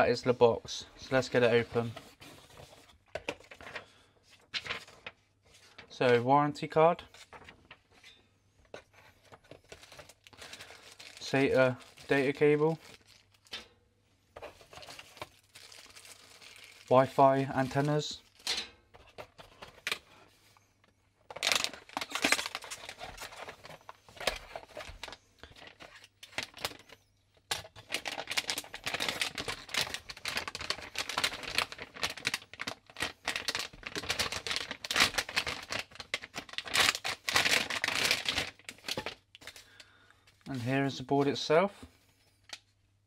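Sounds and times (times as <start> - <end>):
metallic plastic bag crinkling: 9.6 - 13.6, 14.7 - 18.6, 21.3 - 23.7, 27.6 - 39.7.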